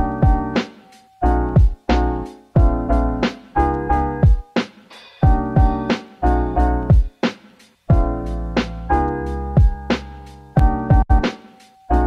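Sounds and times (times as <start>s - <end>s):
kick drum: 0.0s - 0.5s, 1.6s - 1.9s, 2.6s - 2.9s, 4.2s - 4.6s, 5.2s - 5.9s, 6.9s - 7.2s, 7.9s - 8.2s, 9.6s - 9.9s, 10.6s - 11.2s
keyboard chords: 0.0s - 12.0s
lofi hip-hop beat: 0.0s - 12.0s.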